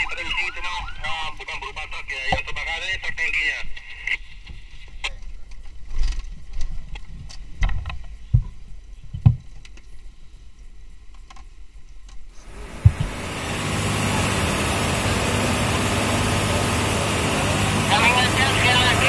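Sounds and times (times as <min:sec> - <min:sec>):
road rumble inside vehicle: 0:12.4 - 0:19.0.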